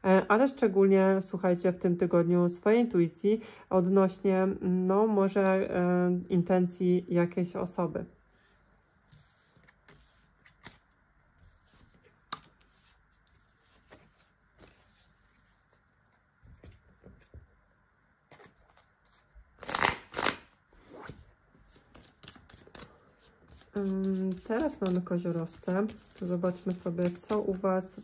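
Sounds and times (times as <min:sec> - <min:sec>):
cards shuffling: 0:09.0 - 0:17.4, 0:18.3 - 0:28.0.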